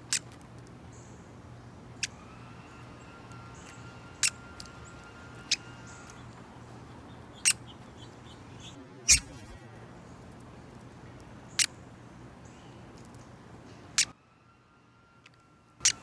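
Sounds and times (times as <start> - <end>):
woodpecker calls: 0.0 - 1.2, 1.9 - 10.3, 15.8 - 16.0.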